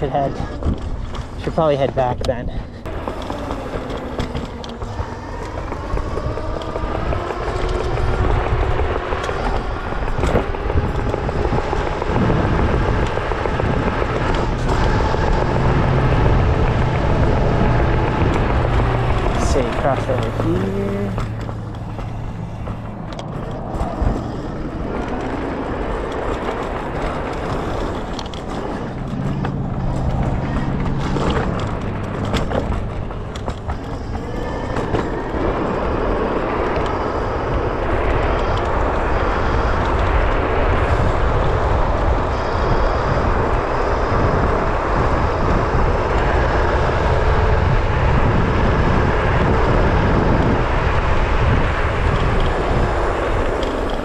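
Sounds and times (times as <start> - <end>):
tyre and deck rumble: 0.0 - 42.2
wind rushing over microphone: 0.0 - 54.0.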